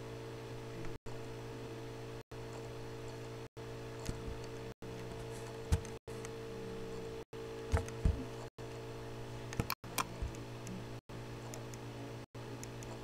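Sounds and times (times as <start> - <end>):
electrical hum: 0.0 - 13.0
computer mouse clicks and knocks: 12.6 - 13.0.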